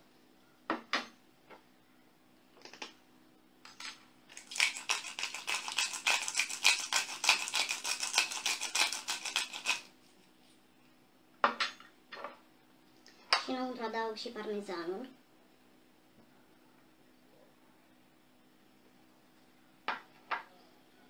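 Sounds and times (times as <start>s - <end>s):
pepper mill grinding: 3.7s - 9.9s.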